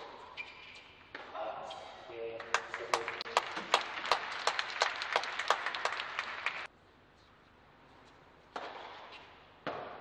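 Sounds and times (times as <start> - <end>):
crowd applauding: 2.4 - 6.7.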